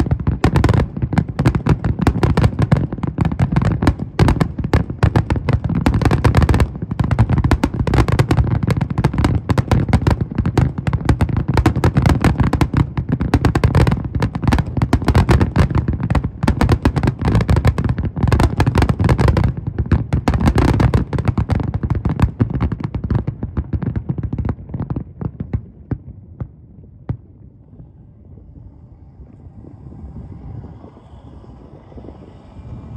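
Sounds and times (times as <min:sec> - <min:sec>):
fireworks bangs and crackling: 0:00.0 - 0:32.9
low steady rumble: 0:25.4 - 0:32.9.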